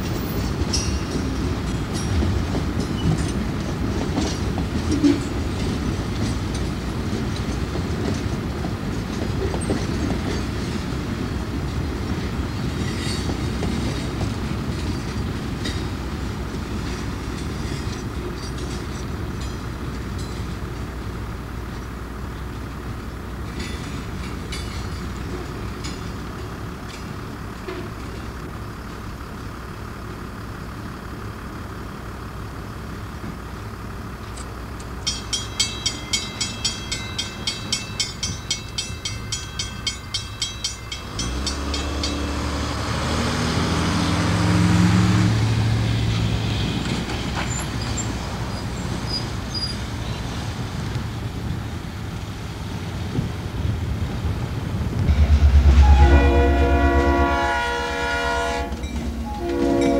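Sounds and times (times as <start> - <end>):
crossing warning bell ringing: 0.0 - 11.0, 11.6 - 21.0, 23.2 - 28.2, 34.3 - 42.8, 55.0 - 59.9
freight train passing: 0.0 - 59.9
road traffic rumbling: 0.0 - 59.9
train horn blast: 55.1 - 59.9.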